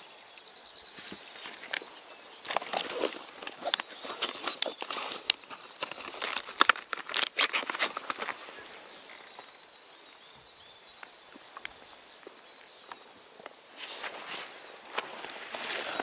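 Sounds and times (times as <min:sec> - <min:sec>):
rustling and crackling: 0:00.9 - 0:09.8, 0:13.7 - 0:16.0.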